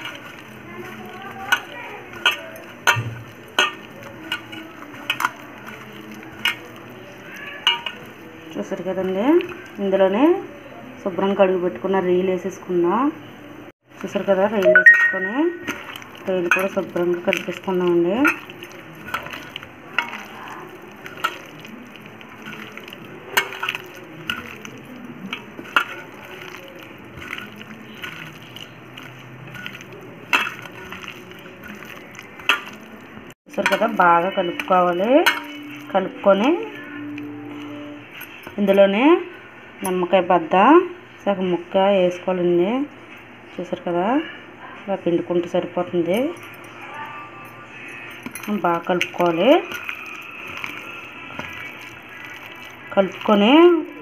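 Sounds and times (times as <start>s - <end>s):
hand mixing thick marinade: 0.0s - 10.3s, 13.8s - 14.7s, 15.6s - 38.8s, 48.2s - 54.0s
hand clinking on steel bowl: 47.9s - 50.8s.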